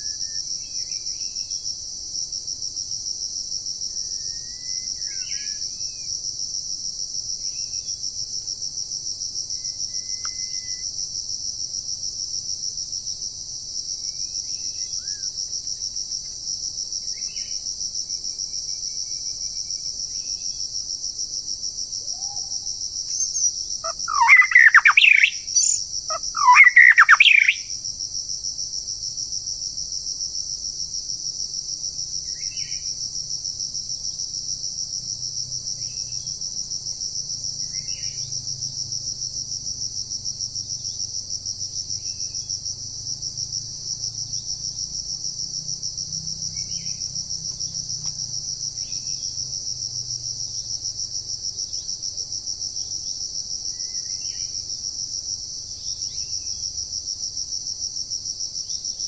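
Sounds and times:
rapid whistled birdsong: 0.0s - 1.5s, 4.0s - 6.0s, 9.6s - 10.9s, 23.1s - 27.7s
insects droning: 0.0s - 59.0s
songbird whistled calls: 23.1s - 27.7s.

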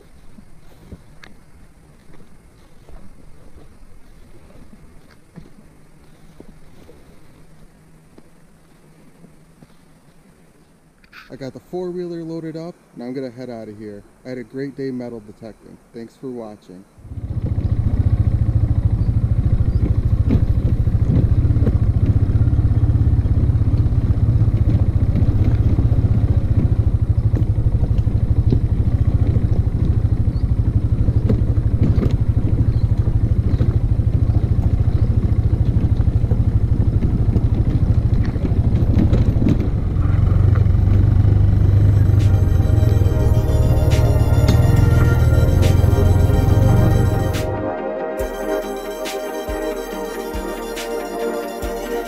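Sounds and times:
quad engine running: 17.0s - 47.6s.

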